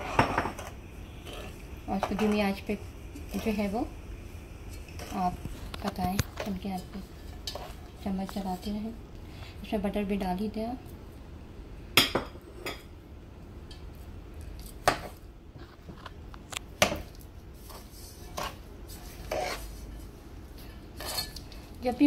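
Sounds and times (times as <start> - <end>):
metal spoon scraping pot: 0.0 - 2.4, 19.2 - 19.7, 21.0 - 21.4.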